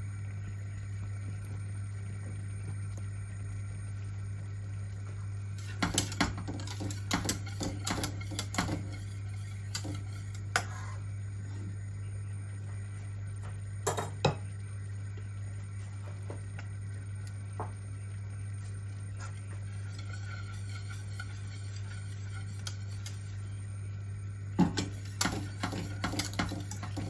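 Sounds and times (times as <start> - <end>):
steady low hum: 0.0 - 27.0
whisk clinking against metal pot: 5.6 - 10.4, 19.7 - 23.6, 24.6 - 27.0.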